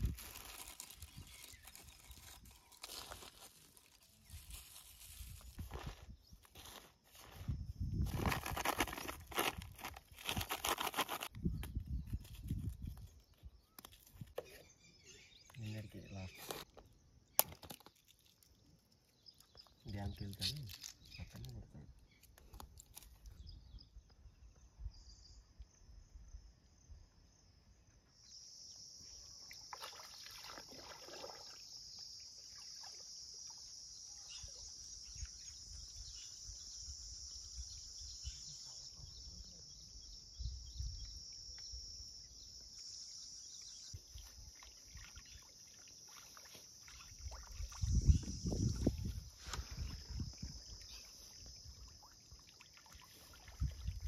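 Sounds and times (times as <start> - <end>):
high-pitched insect buzz: 28.2 - 53.6
man wading and splashing in water: 29.4 - 33.9, 44.0 - 54.0.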